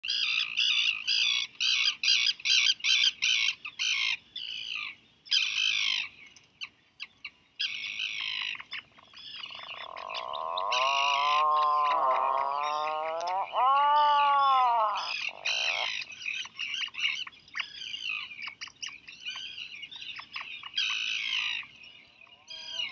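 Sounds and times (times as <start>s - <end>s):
chick peeping: 8.6s - 17.7s
bird drawn-out call: 9.2s - 18.0s, 22.3s - 22.9s.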